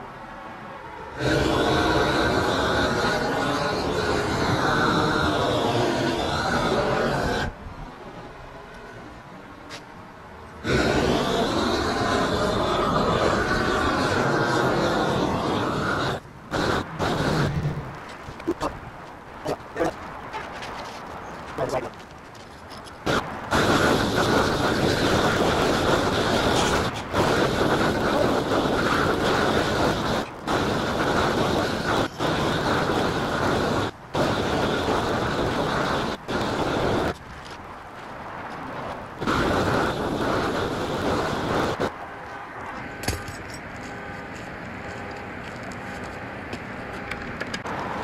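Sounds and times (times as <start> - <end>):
blowtorch roaring: 1.1 - 7.6, 10.6 - 20.0, 23.0 - 42.0.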